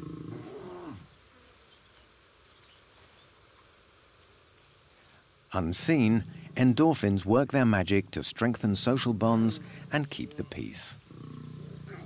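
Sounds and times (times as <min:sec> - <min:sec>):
lion humming low: 0:00.0 - 0:01.1, 0:08.8 - 0:12.0
faint buzzing: 0:00.0 - 0:12.0.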